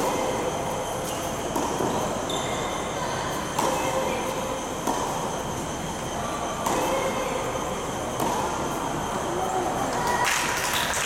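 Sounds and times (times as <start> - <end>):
tennis balls struck and bouncing: 0.0 - 7.4, 8.0 - 9.0
mechanical hum with whining: 0.0 - 11.0.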